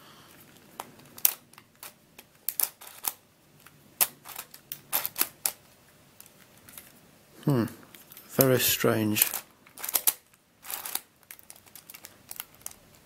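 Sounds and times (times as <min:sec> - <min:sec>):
plastic puzzle clicking: 0:00.8 - 0:05.6, 0:09.2 - 0:13.0.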